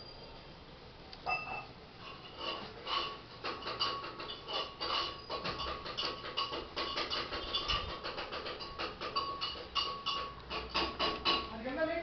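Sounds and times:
faint steady high tone: 0:00.0 - 0:01.7.

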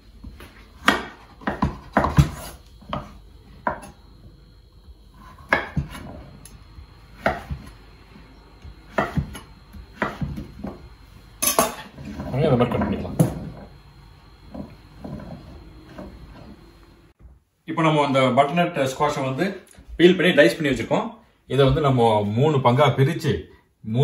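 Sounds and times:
knife chopping on wooden board: 0:00.8 - 0:04.0, 0:05.2 - 0:06.1, 0:07.2 - 0:07.8, 0:08.6 - 0:10.9.

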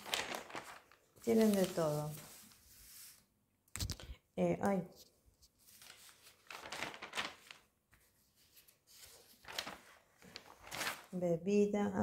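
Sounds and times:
newsprint pages rustling: 0:00.0 - 0:03.2, 0:05.4 - 0:11.2.

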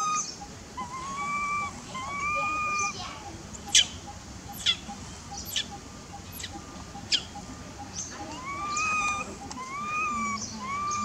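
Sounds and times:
baby monkey crying: 0:00.0 - 0:03.0, 0:08.2 - 0:11.0.

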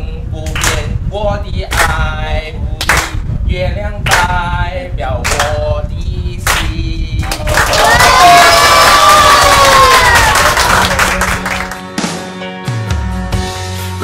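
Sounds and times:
hand clapping: 0:00.4 - 0:00.8, 0:01.7 - 0:02.0, 0:02.8 - 0:03.2, 0:04.1 - 0:04.3, 0:05.2 - 0:05.6, 0:06.4 - 0:12.1.

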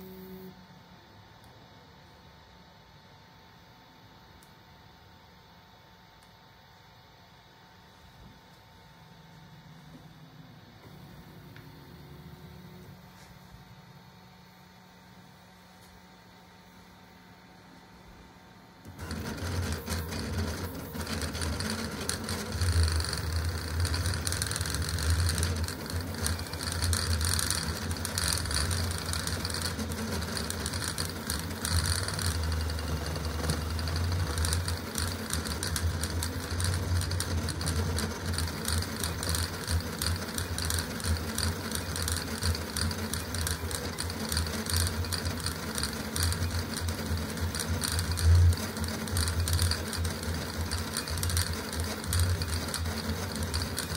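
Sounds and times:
stepper motors buzzing and whining: 0:18.9 - 0:53.9.

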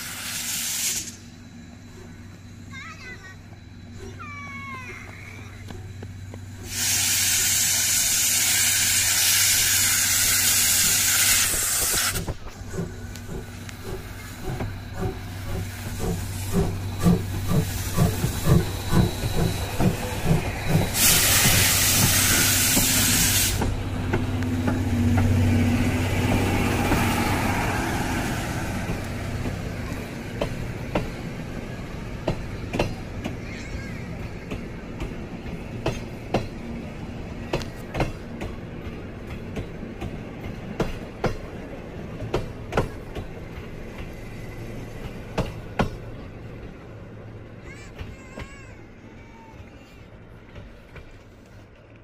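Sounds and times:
steam hissing from locomotive: 0:00.0 - 0:02.1, 0:06.5 - 0:35.0
steam locomotive exhaust chuffing: 0:00.0 - 0:47.2
railway coaches rolling past: 0:00.0 - 0:52.0.

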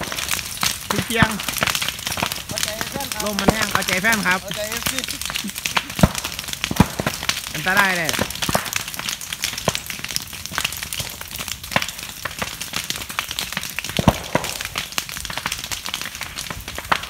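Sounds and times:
fire hiss: 0:00.0 - 0:13.1
bamboo burning with crackling pops: 0:00.0 - 0:17.0.

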